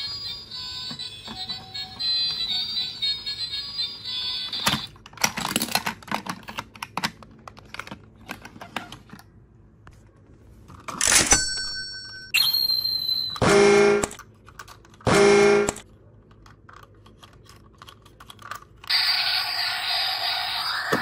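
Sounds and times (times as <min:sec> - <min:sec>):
steady electronic tone: 0:18.9 - 0:21.0.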